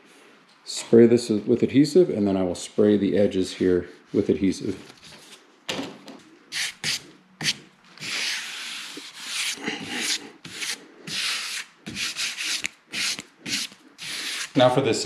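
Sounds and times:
hands rubbing drywall corner bead: 6.5s - 14.6s.

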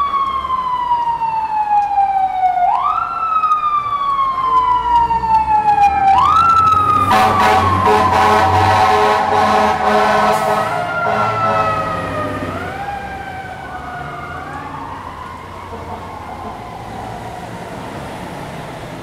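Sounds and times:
siren wailing: 0.0s - 19.0s
heavy engine rumble: 4.2s - 19.0s
fire truck horn blare: 6.1s - 13.2s, 15.5s - 17.0s.

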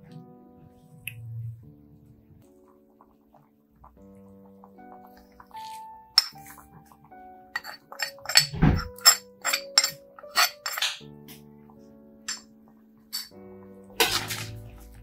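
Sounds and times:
instrumental background music: 0.0s - 15.0s
small dish clinking: 6.2s - 6.6s, 7.6s - 11.0s, 13.1s - 13.4s.

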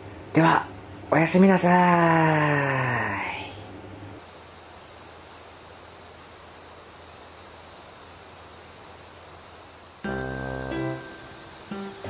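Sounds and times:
steady background hiss: 0.0s - 12.0s
insect high unbroken trill: 4.2s - 12.0s
insect pulsing trill: 4.2s - 12.0s.

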